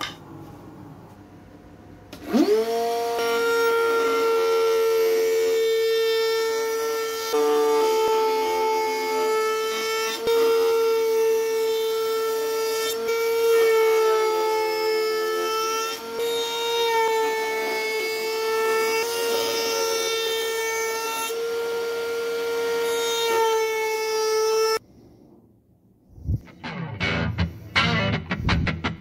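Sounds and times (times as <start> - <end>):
wood router high whine: 2.2 - 24.8.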